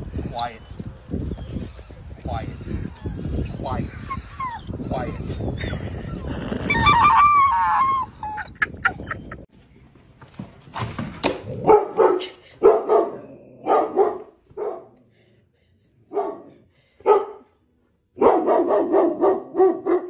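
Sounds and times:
dog barking: 11.6s - 15.0s, 16.1s - 17.5s, 18.2s - 20.0s.

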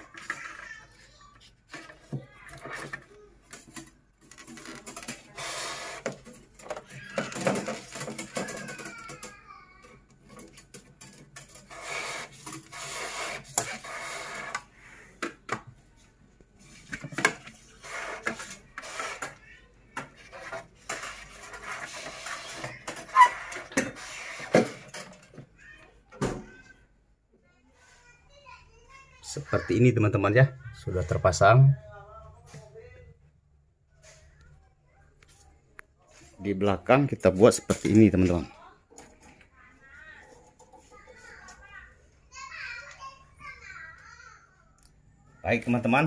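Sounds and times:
metal tubing rubbing and scraping: 11.4s - 14.7s, 17.6s - 19.4s, 20.2s - 25.0s.

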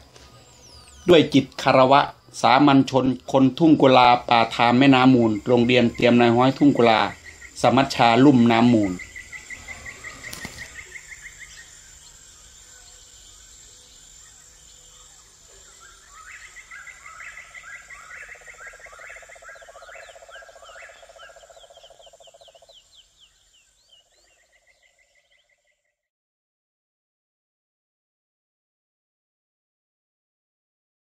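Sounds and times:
fast pulsing insect chirp: 0.0s - 25.9s.

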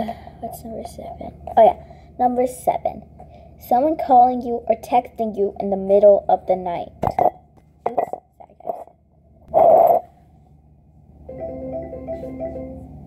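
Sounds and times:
phone ringtone marimba melody: 11.3s - 13.0s.

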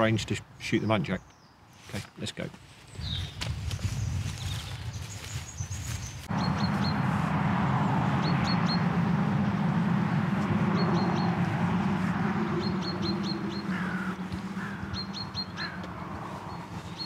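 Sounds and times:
small birds chirping: 0.0s - 7.2s, 7.8s - 17.0s
lower falling bird calls: 2.8s - 17.0s
steady low rumble: 6.2s - 17.0s.

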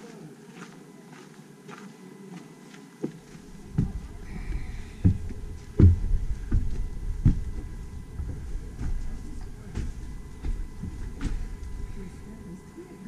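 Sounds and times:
footsteps on wooden steps: 2.7s - 12.7s.

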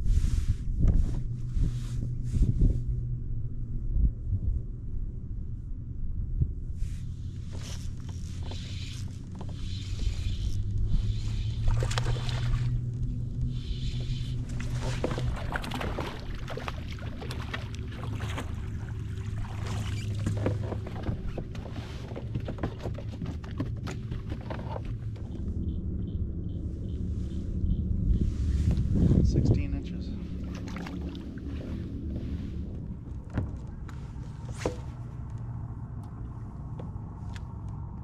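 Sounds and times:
steady low rumble: 0.0s - 38.0s
water splashing against hull: 6.8s - 25.6s, 28.1s - 37.6s.

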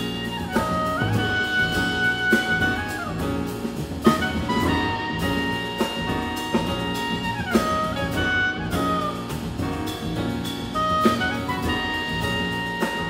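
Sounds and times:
clarinet melody: 0.0s - 13.0s
double bass: 0.0s - 13.0s
drum kit with cymbals: 0.0s - 13.0s
piano: 0.0s - 13.0s.

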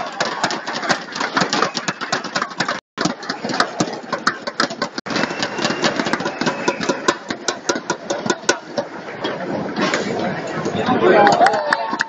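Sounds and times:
sharp claps and knocks: 0.0s - 8.9s
crowd voices: 0.0s - 12.0s.

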